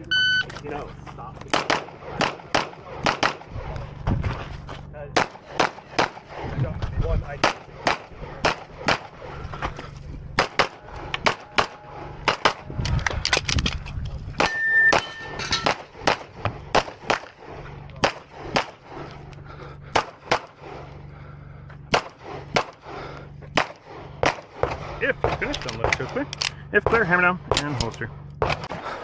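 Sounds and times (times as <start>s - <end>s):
short ringing tone: 0.0s - 0.5s, 14.5s - 15.5s
rapid pistol shots: 1.5s - 3.8s, 5.1s - 6.6s, 7.4s - 9.3s, 10.3s - 12.7s, 14.4s - 19.1s, 19.8s - 21.0s, 21.9s - 26.2s, 28.4s - 29.0s.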